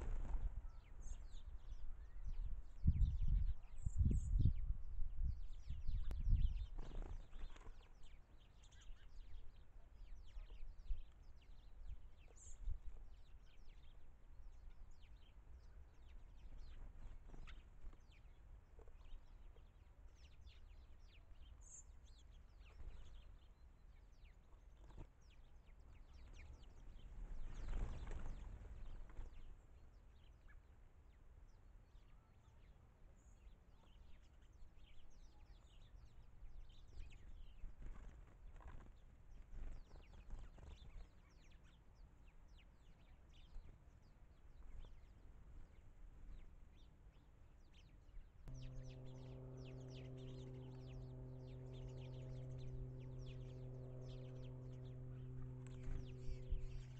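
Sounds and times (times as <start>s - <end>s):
small birds chirping: 0.0s - 30.7s, 32.0s - 56.9s
low steady rumble: 48.5s - 56.9s.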